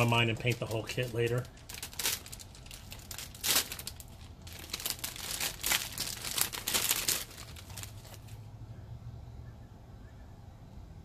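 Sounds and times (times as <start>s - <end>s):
plastic bag crinkling and rustling: 0.0s - 8.4s.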